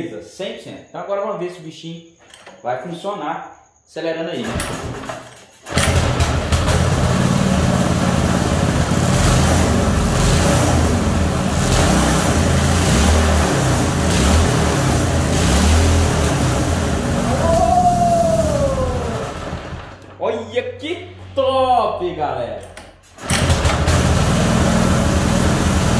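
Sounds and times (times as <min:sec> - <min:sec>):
small engine revving: 0:05.7 - 0:20.0.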